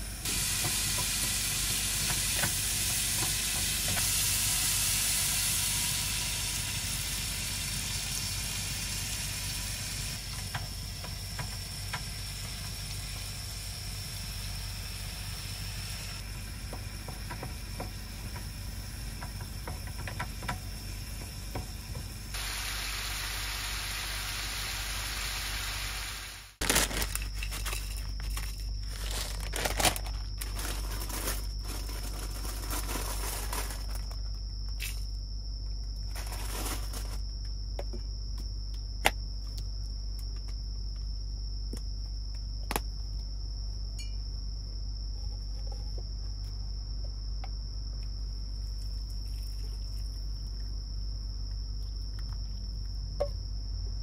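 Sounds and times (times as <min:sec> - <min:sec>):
high insect trill: 0:00.1 - 0:25.9, 0:26.5 - 0:54.0
food sizzling in a frying pan: 0:00.2 - 0:16.4, 0:22.4 - 0:26.6
plastic packet crinkling and tearing: 0:26.6 - 0:34.2.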